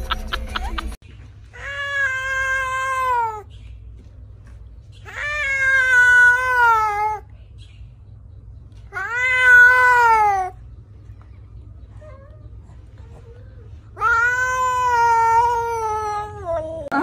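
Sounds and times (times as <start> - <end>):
cat meowing: 1.6 - 3.4, 5.0 - 7.2, 8.9 - 10.6, 13.2 - 17.0.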